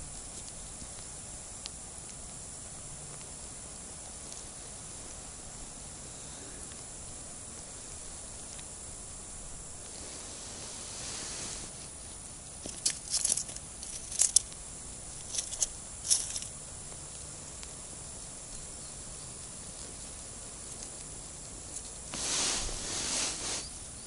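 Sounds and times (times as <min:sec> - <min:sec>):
faint outdoor hiss: 0:00.0 - 0:24.0
fishing rod handling crackles: 0:12.6 - 0:14.6, 0:15.2 - 0:16.5.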